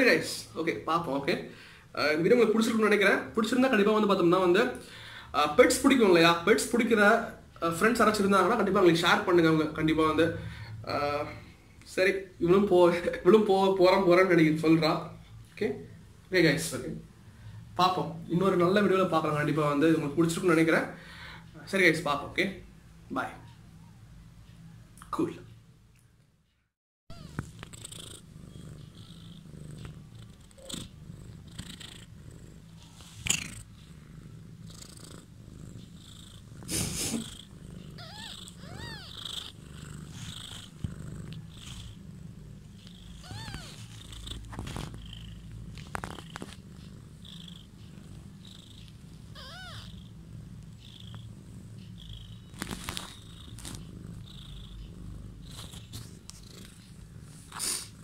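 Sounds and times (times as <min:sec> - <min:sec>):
cat purring: 0:27.1 - 0:58.0
high squeaks: 0:38.0 - 0:39.4.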